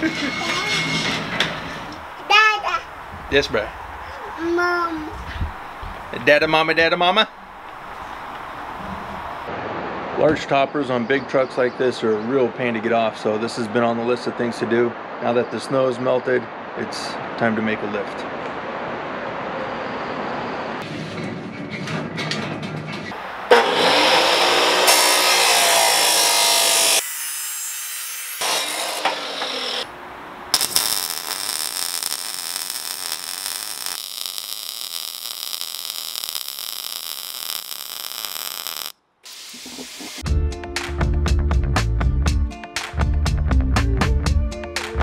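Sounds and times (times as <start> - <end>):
power saw cutting steel tubing: 23.5 - 29.9
welder arc crackling and hissing: 30.6 - 40.2.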